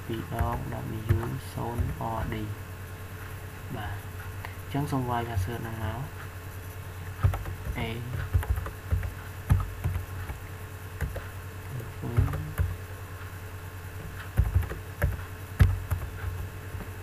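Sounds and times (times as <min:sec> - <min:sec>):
steady low hum: 0:00.0 - 0:17.0
keyboard keys clacking: 0:00.2 - 0:02.4, 0:07.0 - 0:12.8, 0:14.0 - 0:17.0.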